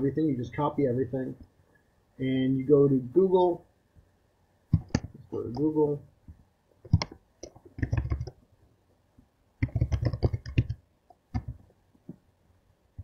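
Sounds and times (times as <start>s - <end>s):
keyboard keys clicking: 6.9s - 8.4s, 9.6s - 11.6s.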